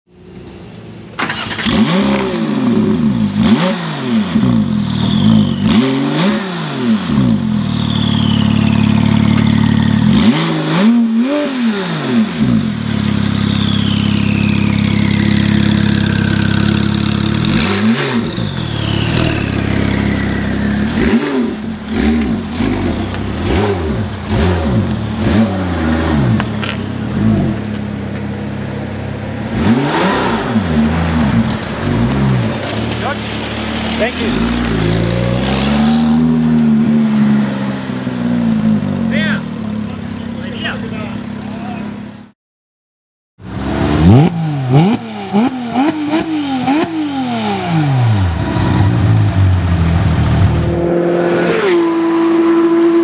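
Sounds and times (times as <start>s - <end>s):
car engine revving and idling: 0.1s - 42.3s, 43.4s - 53.0s
turbo whistle: 4.4s - 5.9s, 7.3s - 9.1s, 12.7s - 15.6s, 18.2s - 20.6s, 40.2s - 40.8s.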